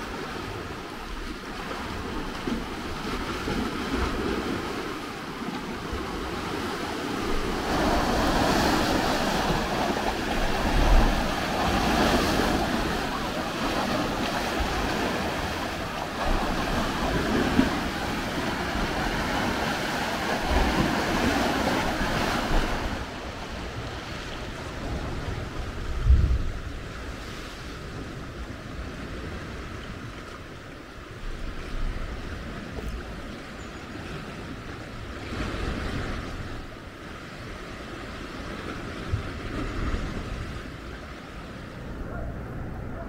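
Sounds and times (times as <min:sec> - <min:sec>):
wind buffeting microphone: 0:00.0 - 0:30.2.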